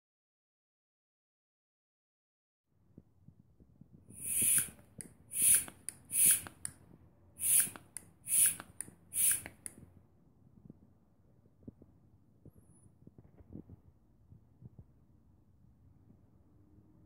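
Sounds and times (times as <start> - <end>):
hand vacuum pump hissing and clicking: 4.2 - 6.8, 7.4 - 9.8.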